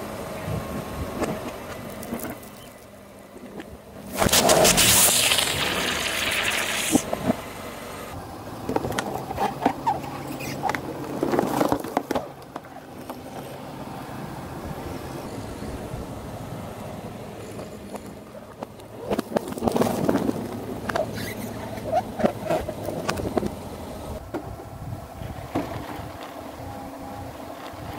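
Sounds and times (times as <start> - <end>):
plastic bottle crushed by tyre: 4.1 - 7.0
liquid spraying: 4.1 - 7.1.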